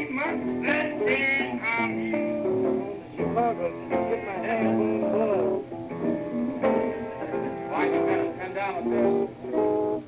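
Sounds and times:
guitar melody: 0.0 - 10.0
jazz trio playing: 2.1 - 10.0.

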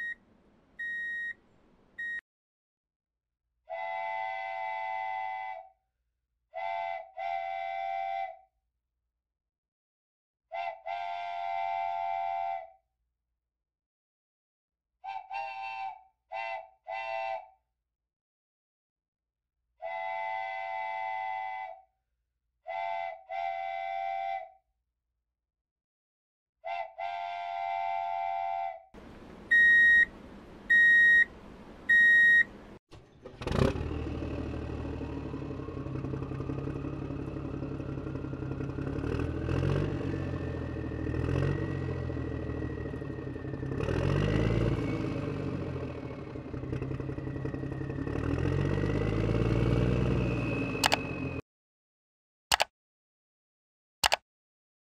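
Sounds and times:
steam train whistle: 3.7 - 5.7, 6.6 - 8.4, 10.5 - 12.8, 15.1 - 17.5, 19.8 - 21.8, 22.7 - 24.6, 26.7 - 28.8
trucks driving over crossing: 29.0 - 51.4
vehicle engine running: 29.0 - 51.4
high-pitched beeps: 29.5 - 30.1, 30.7 - 31.3, 31.9 - 32.5.

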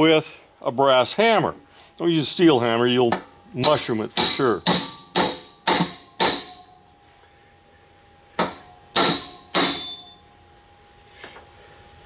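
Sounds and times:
hammer ringing on metal shaft: 3.1 - 6.8, 8.3 - 10.2.

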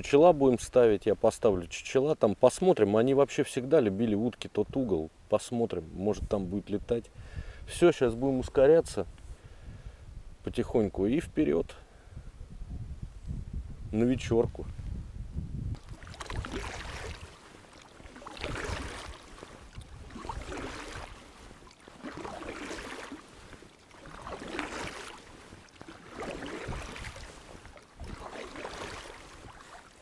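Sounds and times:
oars splashing through water: 15.7 - 30.0.

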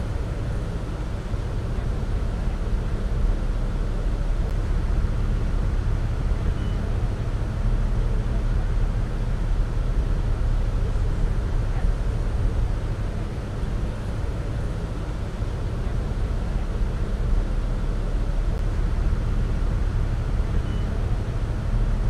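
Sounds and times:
boat engine rumbling: 0.0 - 22.0.

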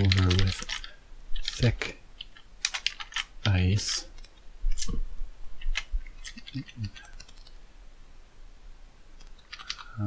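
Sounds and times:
typing on computer keyboard: 0.0 - 3.3, 5.6 - 7.6, 9.2 - 10.0.

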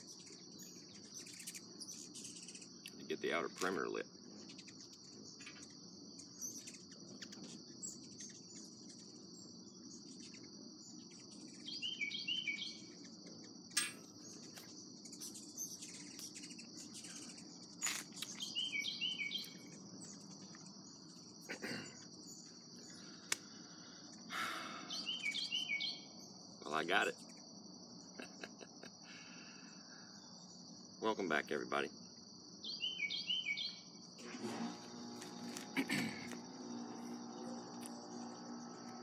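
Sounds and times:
high-pitched insect trilling: 0.0 - 34.2, 34.9 - 39.0
songbird singing falling notes: 11.6 - 13.0, 13.7 - 20.6, 24.9 - 26.1, 32.6 - 33.9
air conditioner hum: 33.9 - 39.0.

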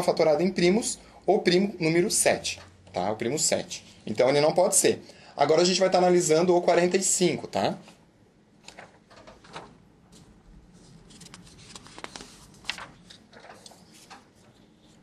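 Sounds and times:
paper rustling and sliding: 8.6 - 15.0.

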